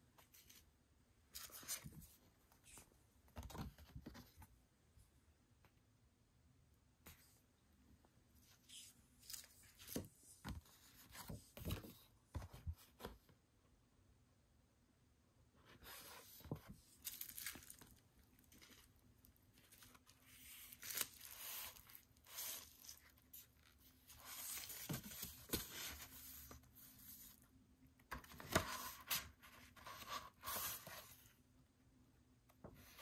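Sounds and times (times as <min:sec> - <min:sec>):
pages rustling and turning: 0:08.5 - 0:13.2, 0:15.8 - 0:27.4.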